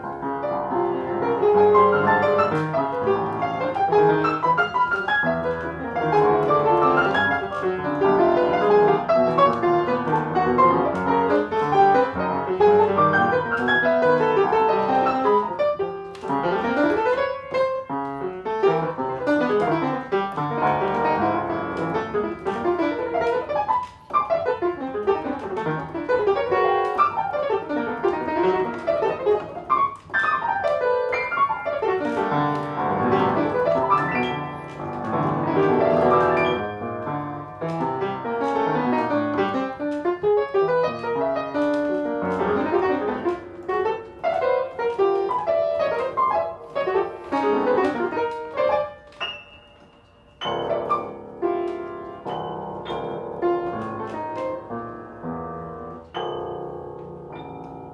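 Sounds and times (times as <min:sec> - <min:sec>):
solo piano: 0:00.0 - 0:57.9.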